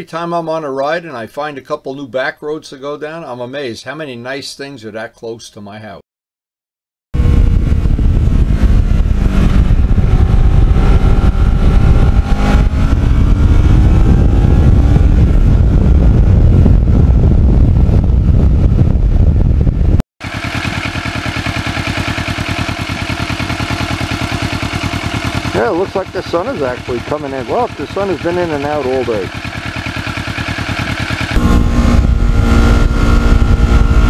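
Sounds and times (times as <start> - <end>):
wind rush: 7.2 - 20.0, 30.8 - 34.0
motorcycle engine revving: 7.2 - 34.0
motorcycle engine idling: 20.2 - 34.0.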